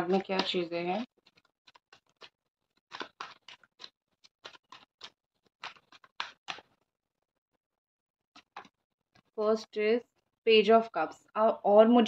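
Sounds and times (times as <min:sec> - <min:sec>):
cards shuffled by hand: 0:00.0 - 0:06.9, 0:08.4 - 0:09.4.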